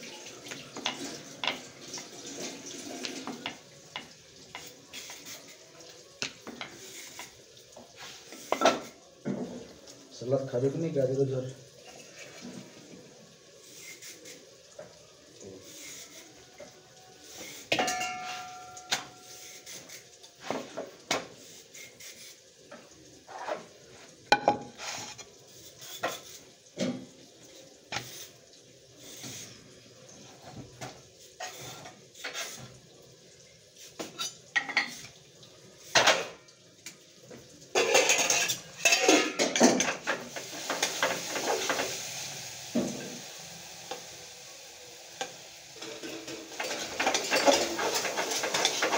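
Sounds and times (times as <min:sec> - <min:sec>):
utensils clattering and clinking: 0:00.7 - 0:05.5, 0:08.3 - 0:09.6, 0:17.4 - 0:21.0, 0:30.4 - 0:32.7, 0:34.0 - 0:35.2, 0:35.9 - 0:36.4, 0:37.7 - 0:42.1, 0:45.8 - 0:48.9
metal clang: 0:17.7 - 0:19.2.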